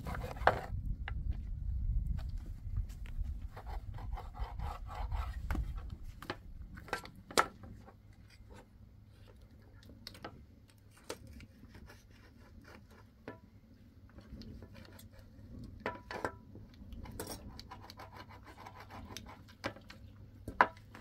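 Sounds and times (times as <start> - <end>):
low rumble: 0.6 - 3.6.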